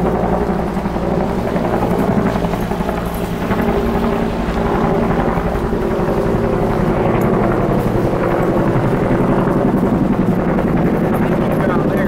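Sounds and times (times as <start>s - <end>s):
stroller wheels rumbling on dirt: 0.0s - 12.0s.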